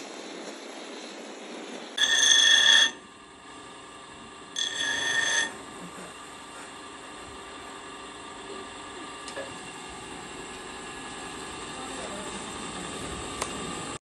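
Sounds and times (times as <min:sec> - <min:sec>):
high ringing grinding squeal: 0:01.9 - 0:05.8
bench grinder running: 0:02.0 - 0:14.0.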